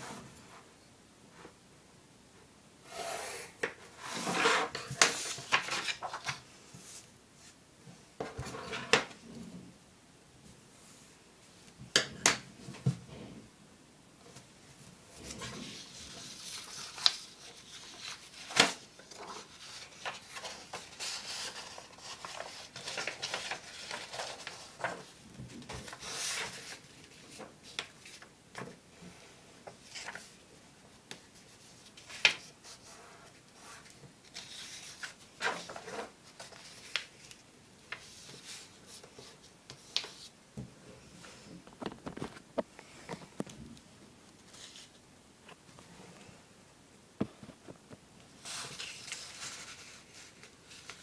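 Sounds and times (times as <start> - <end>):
paper rustling and sliding: 3.5 - 7.6, 15.1 - 28.8, 29.6 - 30.4, 31.1 - 40.4, 44.4 - 45.0, 48.4 - 51.0.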